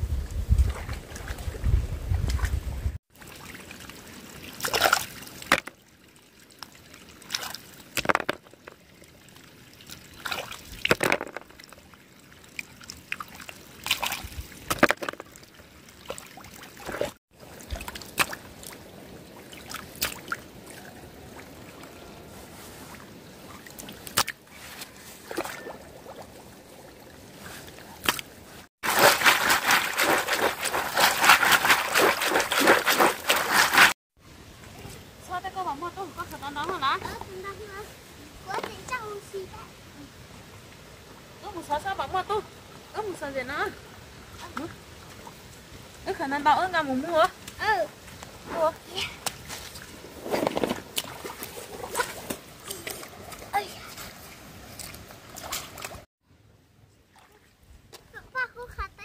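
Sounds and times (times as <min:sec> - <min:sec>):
shallow water sloshing and trickling: 0:00.5 - 0:35.1, 0:42.2 - 0:56.1
small water splashes: 0:00.6 - 0:22.3, 0:22.9 - 0:34.0, 0:40.6 - 0:56.1, 0:57.1 - 0:58.1.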